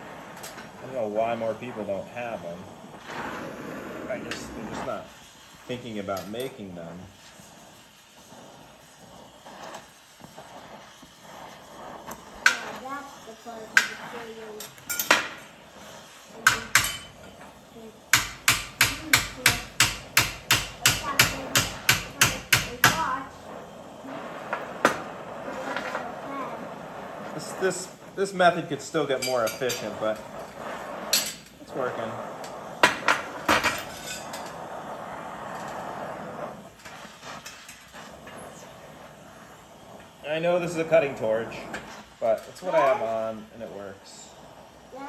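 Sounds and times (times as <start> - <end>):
cutting torch flame hissing: 0.0 - 45.0
hammer striking steel bar: 18.2 - 23.0.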